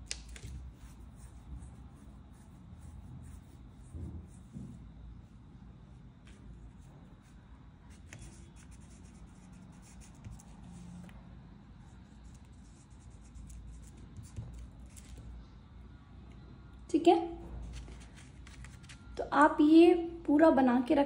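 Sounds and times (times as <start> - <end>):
pencil scratching on paper: 6.3 - 11.1, 12.0 - 15.1.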